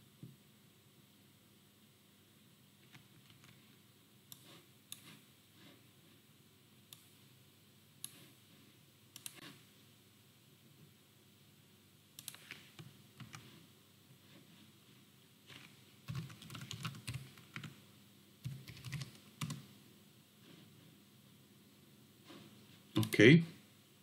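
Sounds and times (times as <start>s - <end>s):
faint typing on keyboard: 2.8s - 5.7s, 8.0s - 8.4s, 9.1s - 9.6s, 12.1s - 13.6s, 15.5s - 17.8s, 18.4s - 19.7s.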